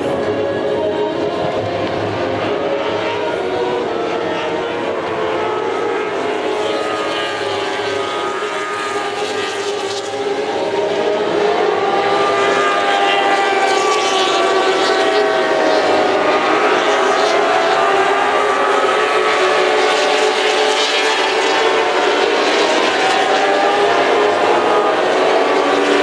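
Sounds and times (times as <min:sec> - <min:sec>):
racing motorcycles revving: 0:00.0 - 0:26.0.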